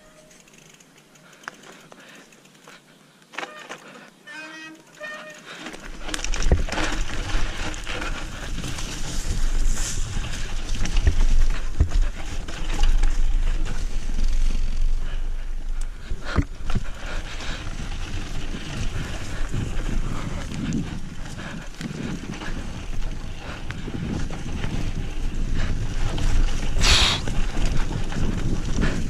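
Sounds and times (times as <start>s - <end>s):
mountain bike tyres rumbling on trail: 0.2s - 29.0s
wind buffeting microphone: 6.0s - 29.0s.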